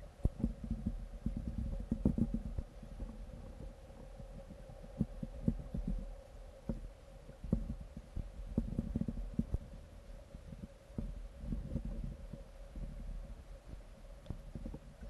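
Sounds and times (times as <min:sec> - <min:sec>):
faint steady hum: 0:00.0 - 0:15.0
low underwater rumble: 0:00.0 - 0:15.0.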